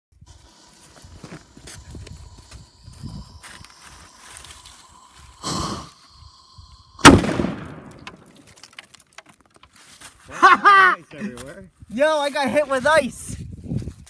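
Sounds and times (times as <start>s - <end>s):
burning fuse hiss: 0.2s - 8.0s
firecracker bang: 7.0s - 8.3s
falling ice ticks: 7.9s - 9.8s.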